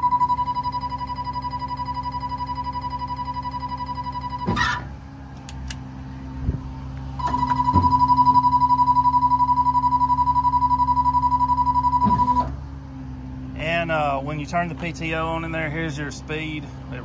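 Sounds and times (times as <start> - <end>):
high fluttering alarm beep: 0.0 - 4.9, 7.2 - 12.5
diesel engine idling: 0.0 - 17.0.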